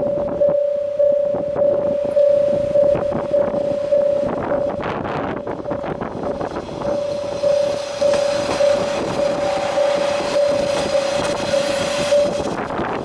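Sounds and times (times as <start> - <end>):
level crossing bell ringing: 0.0 - 6.0, 6.8 - 12.5
train wheels clacking on rails: 5.7 - 13.0.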